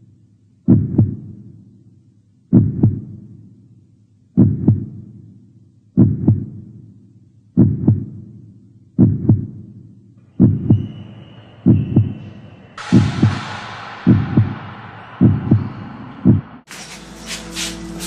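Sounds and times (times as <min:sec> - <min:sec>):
heartbeat thumps: 0:00.7 - 0:01.4, 0:02.5 - 0:03.2, 0:04.4 - 0:05.1, 0:06.0 - 0:06.7, 0:07.6 - 0:08.3, 0:09.0 - 0:09.7, 0:10.4 - 0:11.0, 0:11.6 - 0:16.7.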